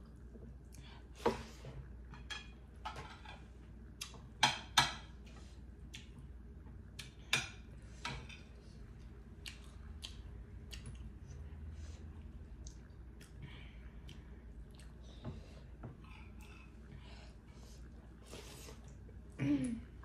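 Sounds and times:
chewing and mouth smacks: 8.9s - 15.2s.

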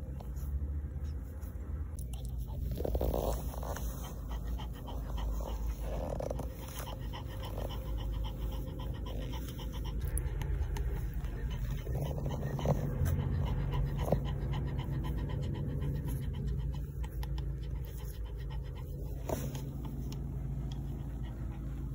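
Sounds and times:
dog panting: 0.0s - 21.9s
puppies suckling: 1.9s - 21.9s.

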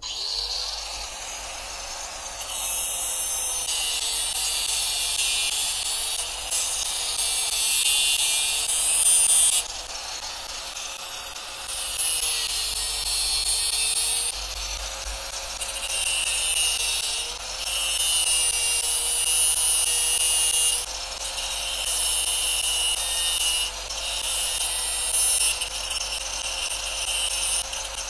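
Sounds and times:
angle grinder cutting metal: 0.0s - 28.0s
grinder motor whine: 0.0s - 28.0s.

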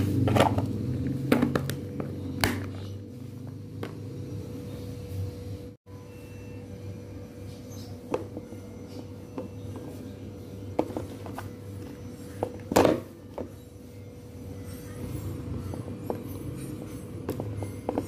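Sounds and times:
plastic containers tapping and clicking: 0.2s - 2.9s.

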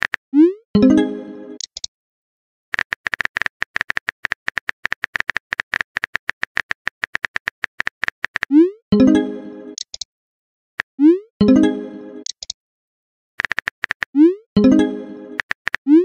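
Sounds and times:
message sent chime: 0.8s - 1.6s.

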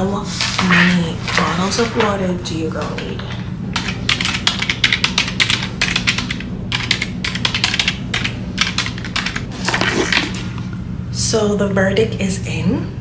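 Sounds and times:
fast typing on laptop keyboard: 2.8s - 10.4s.

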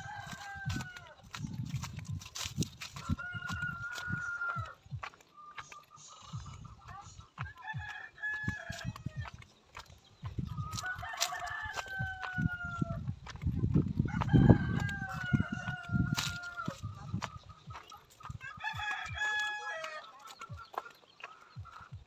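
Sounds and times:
roosters crowing: 0.0s - 22.0s
low rumbling microphone noise: 6.3s - 18.5s.

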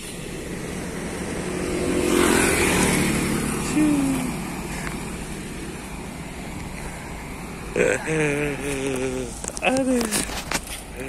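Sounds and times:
vehicle passing: 0.0s - 11.0s.

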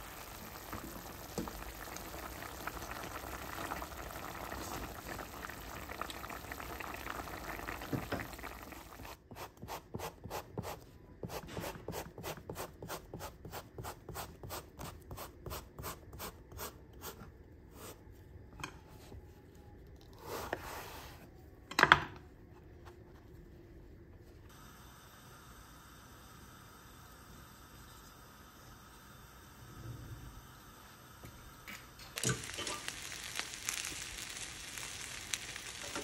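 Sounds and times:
pot simmering and bubbling: 0.0s - 9.3s, 30.4s - 36.0s.

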